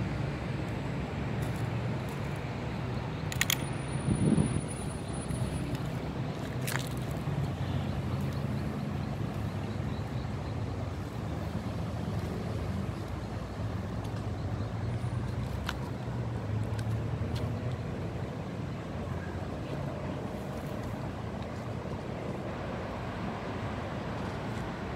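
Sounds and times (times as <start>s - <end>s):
sharp click: 3.2s - 3.9s.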